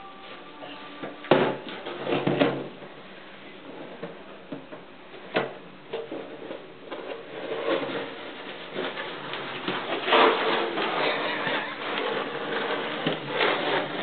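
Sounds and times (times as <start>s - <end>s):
cooler scraping across wooden floor: 5.9s - 14.0s.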